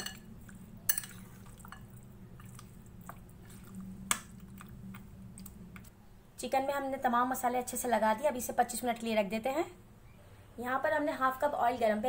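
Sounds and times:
soft wet squishing: 0:00.3 - 0:06.0.

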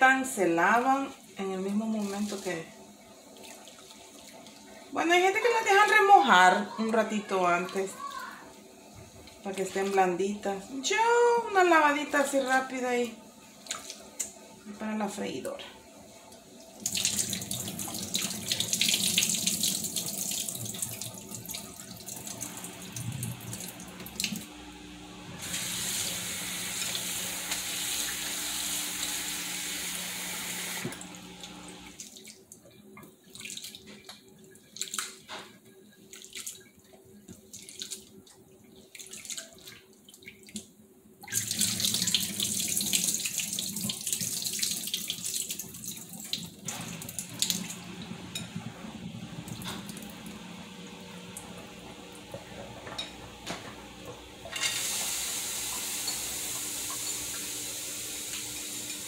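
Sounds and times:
faucet running into a bowl: 0:16.8 - 0:24.5, 0:25.4 - 0:32.0, 0:41.2 - 0:48.6, 0:54.3 - 0:59.0.

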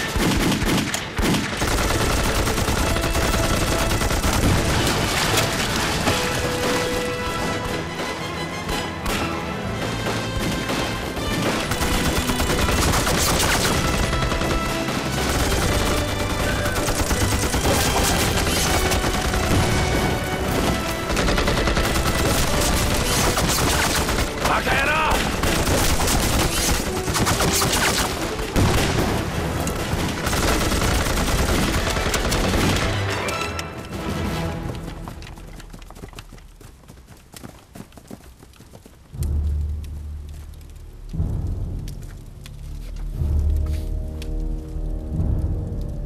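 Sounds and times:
rifle and machine-gun fire: 0:00.0 - 0:07.8, 0:10.0 - 0:33.1.

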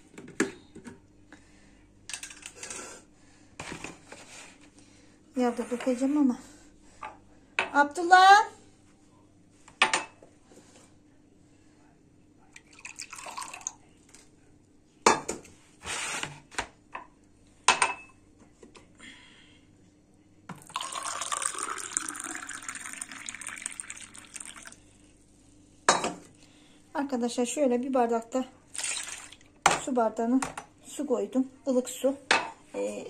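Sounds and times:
water pouring into a glass: 0:12.6 - 0:13.8, 0:20.5 - 0:24.8, 0:28.7 - 0:29.4.

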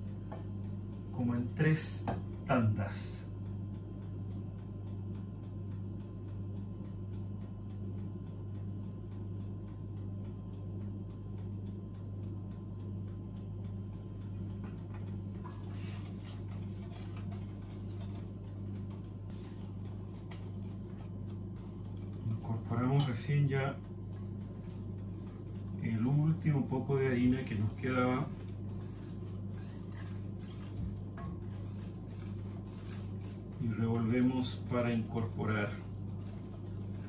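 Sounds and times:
low electrical hum: 0:00.0 - 0:37.0
metal sieve ticking: 0:17.3 - 0:37.0.

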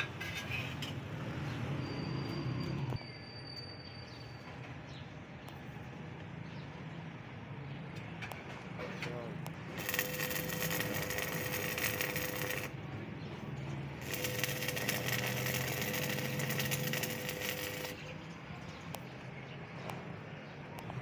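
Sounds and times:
steady welder hum: 0:09.6 - 0:12.8, 0:13.9 - 0:18.2
welding arc crackling: 0:09.6 - 0:12.8, 0:13.9 - 0:18.2.

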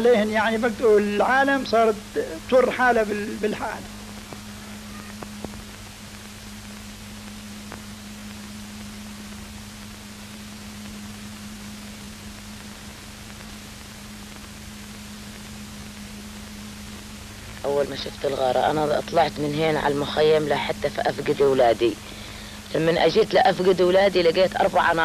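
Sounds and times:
low hum: 0:00.0 - 0:25.0
steady film hiss: 0:00.0 - 0:25.0
faint clicks: 0:04.1 - 0:05.9.

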